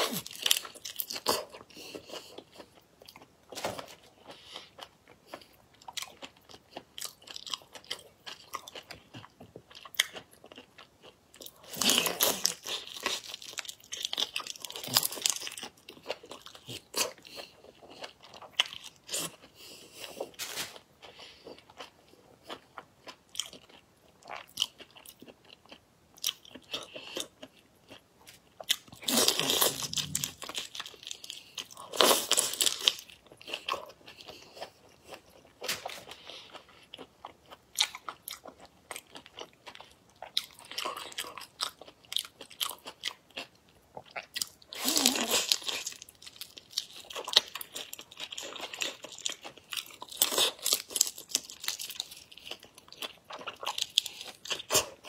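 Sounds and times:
biting and chewing: 0:00.0 - 0:55.0.

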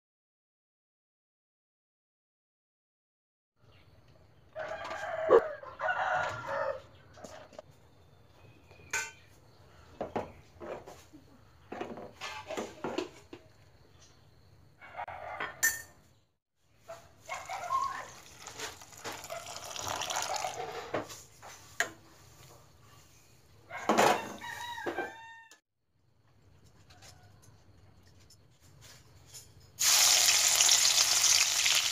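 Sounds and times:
rooster crowing: 0:04.5 - 0:07.4, 0:23.7 - 0:25.6
ladle clinking against pot: 0:08.9 - 0:09.2
noodles boiling in pot: 0:17.3 - 0:20.8.

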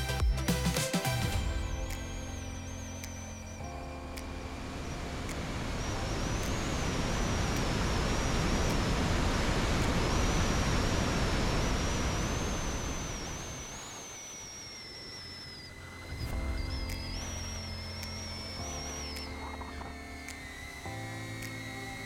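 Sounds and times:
background music: 0:00.0 - 0:06.6.

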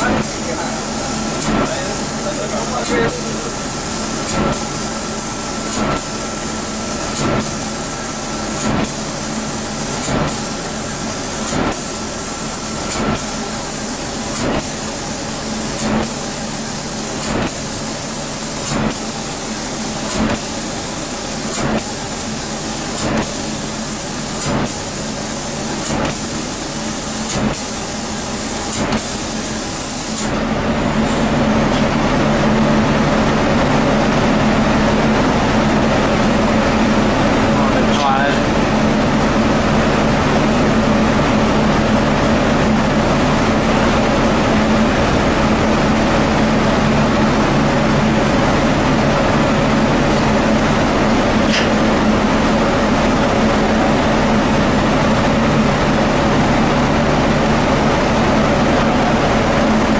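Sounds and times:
steady machine hum: 0:00.0 - 0:59.9
spray gun hissing: 0:00.2 - 0:30.3.

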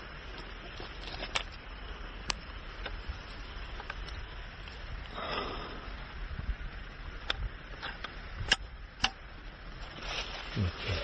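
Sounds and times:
scraping rustle: 0:09.8 - 0:11.0.

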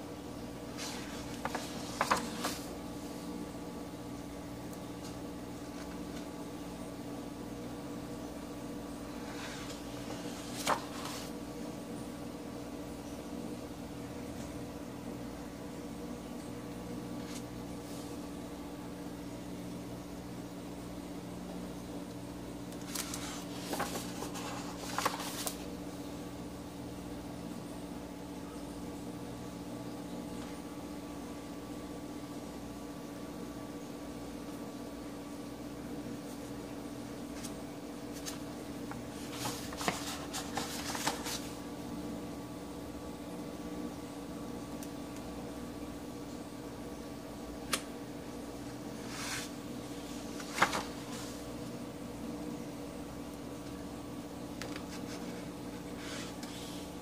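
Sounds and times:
machine hum with hiss: 0:00.0 - 0:57.0
hand brushing paper: 0:00.7 - 0:02.8, 0:09.2 - 0:11.4, 0:22.8 - 0:25.6, 0:39.1 - 0:41.6, 0:49.0 - 0:51.4.

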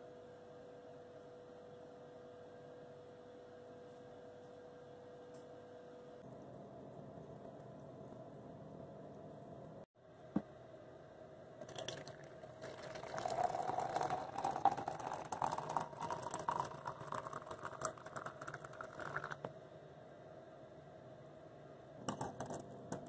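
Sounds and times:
water pouring into glass: 0:11.6 - 0:19.5.

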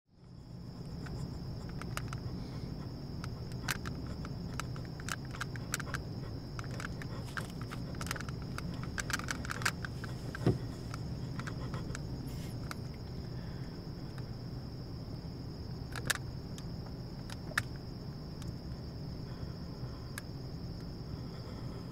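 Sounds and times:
crickets chirring: 0:00.1 - 0:21.9
low steady rumble: 0:00.1 - 0:21.9
faint clicks: 0:03.2 - 0:06.0.

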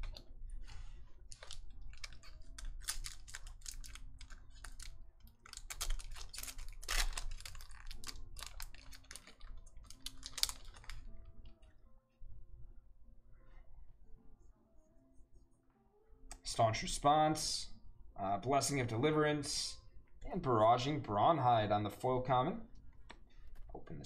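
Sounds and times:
foil wrapper crinkling and tearing: 0:01.3 - 0:11.1.

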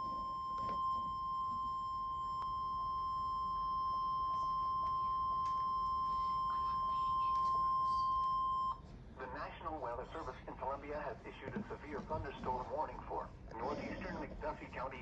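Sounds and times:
steady high alarm beep: 0:00.0 - 0:08.8.

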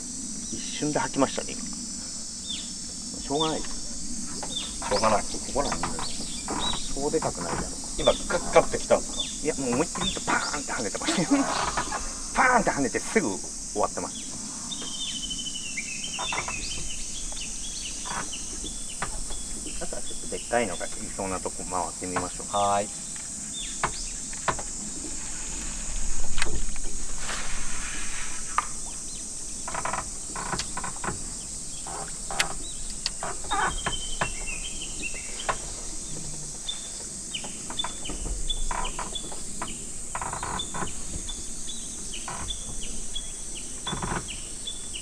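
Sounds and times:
high insect drone: 0:00.0 - 0:45.0
rustling: 0:02.6 - 0:44.3
small bird chirping: 0:04.2 - 0:07.2, 0:31.4 - 0:39.8.

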